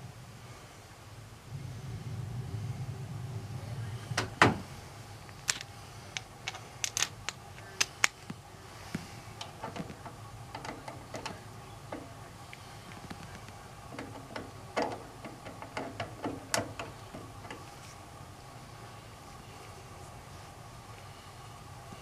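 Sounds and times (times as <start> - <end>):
steady low hum: 0.0 - 22.0
hands and tools clicking on wiring: 5.4 - 8.4, 9.4 - 17.7.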